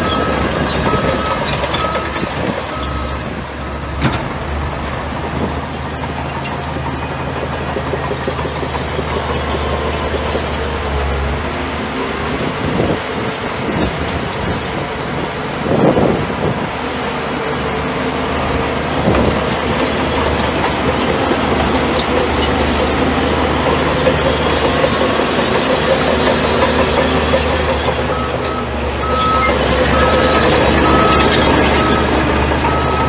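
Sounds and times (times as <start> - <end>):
reversing alarm beeping: 0.0 - 3.9, 28.0 - 33.0
bulldozer diesel engine running: 0.0 - 33.0.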